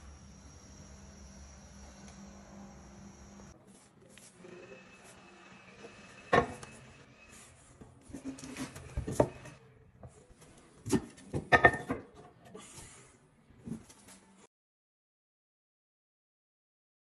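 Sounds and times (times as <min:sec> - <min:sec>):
tools knocking and scraping: 0:05.8 - 0:06.8, 0:07.8 - 0:10.2, 0:10.8 - 0:12.6.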